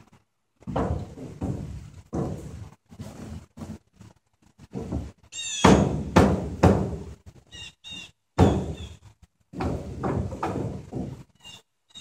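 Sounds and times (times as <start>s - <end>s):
loud thuds: 0.6s - 2.8s, 4.6s - 7.2s, 8.4s - 11.3s
short high-pitched squeaks: 7.5s - 9.0s, 11.4s - 12.0s.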